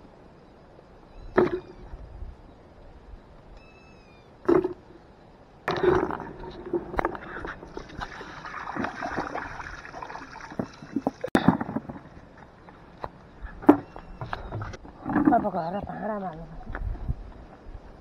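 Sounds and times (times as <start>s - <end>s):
water sloshing in a bucket: 5.7s - 12.0s.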